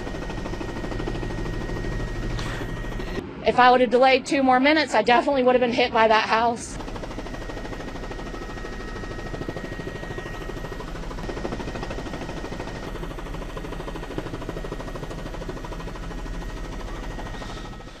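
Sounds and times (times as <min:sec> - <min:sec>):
helicopter rotor chop: 0:00.0 - 0:18.0
thin steady whine: 0:00.0 - 0:18.0.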